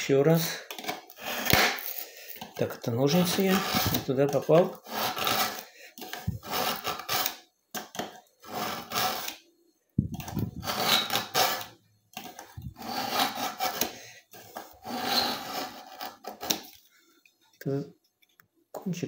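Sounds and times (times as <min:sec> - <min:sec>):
knife scraping through sharpener: 0:03.1 - 0:07.4, 0:08.4 - 0:09.4, 0:10.2 - 0:16.6.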